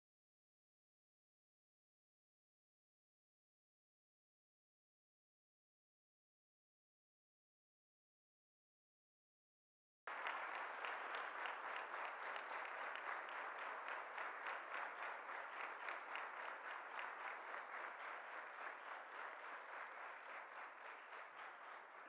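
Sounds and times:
large audience applauding: 10.1s - 22.0s.

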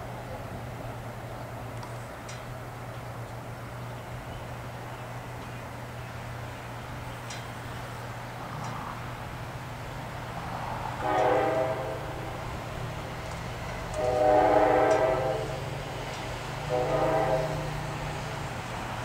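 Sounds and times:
train air horn blasts: 10.9s - 12.7s, 13.7s - 15.9s, 16.6s - 18.4s.

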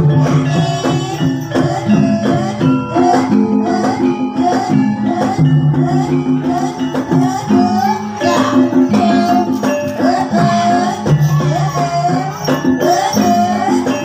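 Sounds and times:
gamelan music: 0.0s - 14.0s
jingling: 6.4s - 14.0s.

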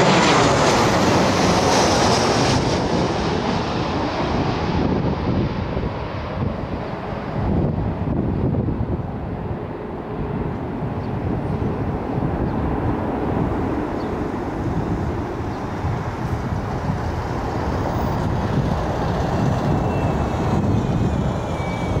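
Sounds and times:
jet engines rumbling: 0.0s - 22.0s.

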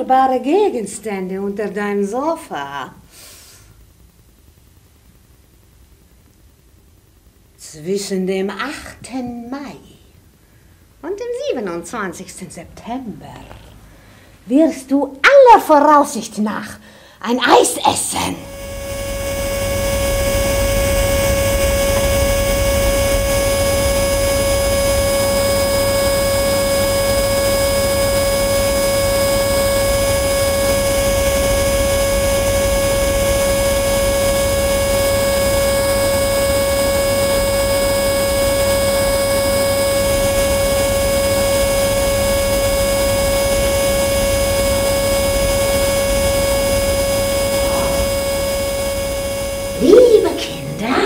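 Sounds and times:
vacuum cleaner running: 18.2s - 51.0s.

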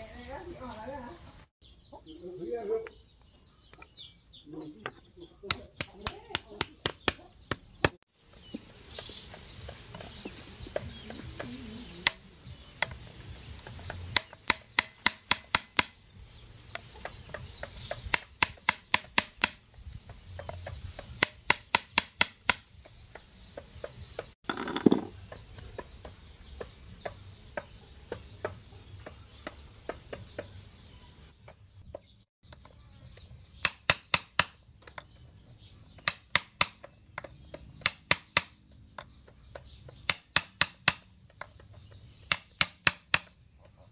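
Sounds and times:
hammer tapping steel chisel: 13.9s - 16.0s.

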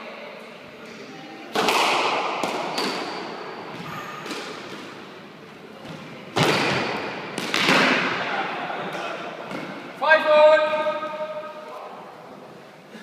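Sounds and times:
squash ball cracks echoing: 1.5s - 5.1s, 5.8s - 9.9s.

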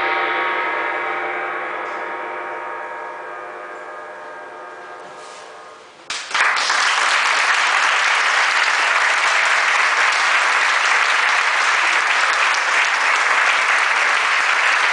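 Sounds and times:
audience applauding: 6.1s - 14.9s.

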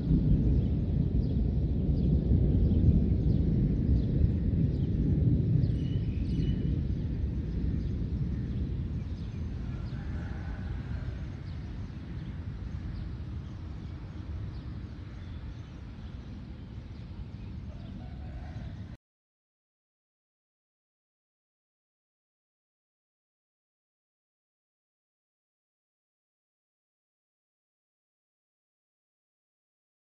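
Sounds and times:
thunder rumbling: 0.0s - 18.8s.

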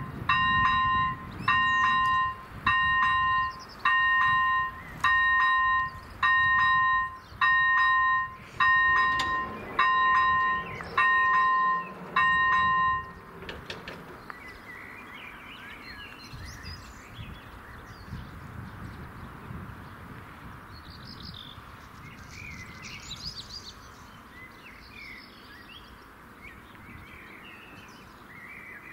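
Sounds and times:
level crossing warning bell: 0.0s - 14.2s.

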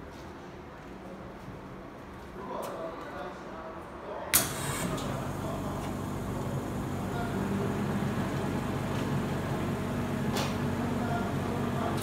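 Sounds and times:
ozone generator humming: 4.4s - 12.0s.

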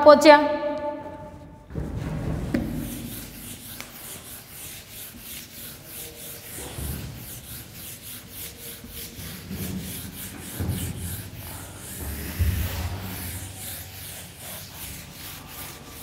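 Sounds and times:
eraser swishing on whiteboard: 2.0s - 16.0s.

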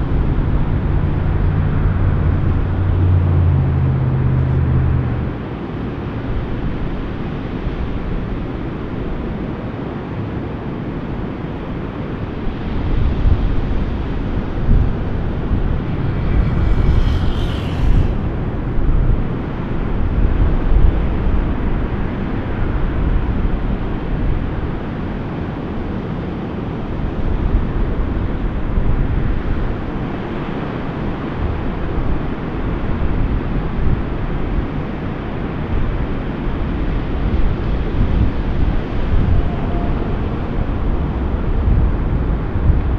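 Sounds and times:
wind buffeting microphone: 0.0s - 42.9s
faint high-pitched sound: 39.2s - 41.4s.

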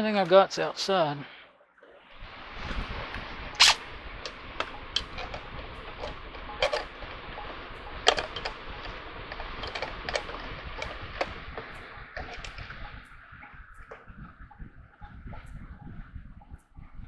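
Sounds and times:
ticks and pops of heating water: 4.2s - 16.7s.

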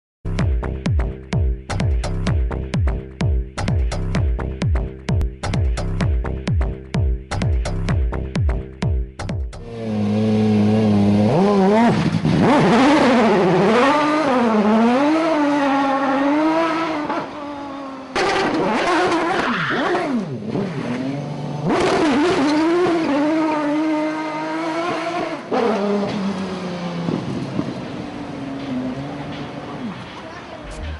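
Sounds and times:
race car engine revving: 9.6s - 30.9s.

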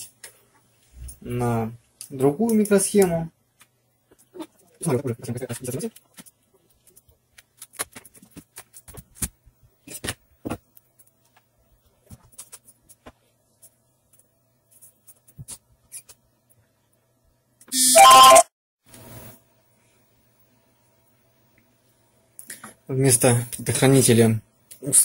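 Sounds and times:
electronic beep: 17.7s - 18.5s.

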